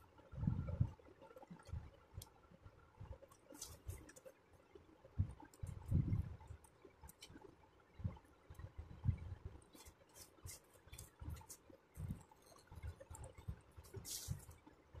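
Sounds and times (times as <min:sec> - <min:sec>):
thin fabric rustling: 0:13.8 - 0:14.6.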